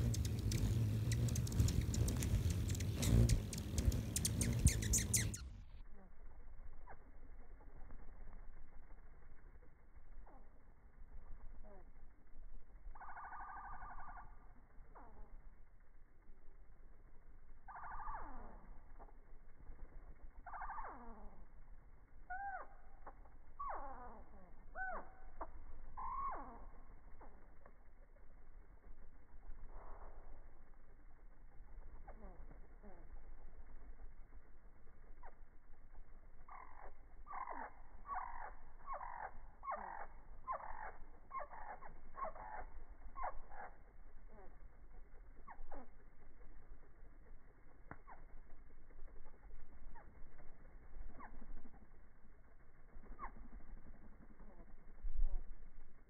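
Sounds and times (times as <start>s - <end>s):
slowed low harsh bird calls: 0.0s - 5.6s, 22.3s - 26.9s, 36.4s - 46.0s
low rumble: 0.0s - 6.7s
slowed hummingbird calls: 0.0s - 56.0s.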